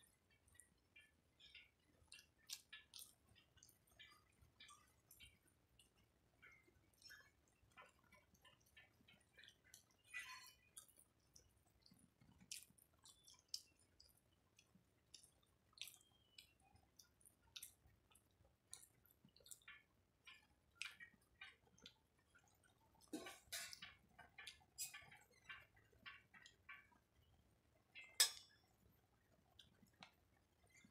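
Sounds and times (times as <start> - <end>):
faint chewing and mouth noises: 0.0 - 30.9.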